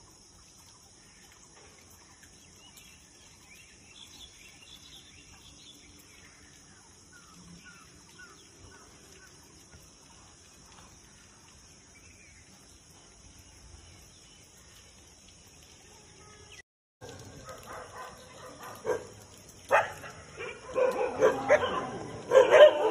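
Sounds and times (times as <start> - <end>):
outdoor background noise: 0.0 - 22.9.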